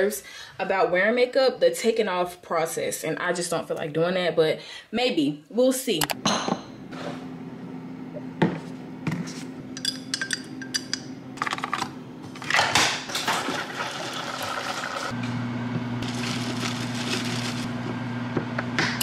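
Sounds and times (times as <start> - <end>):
dishes and utensils clinking: 9.7 - 11.8.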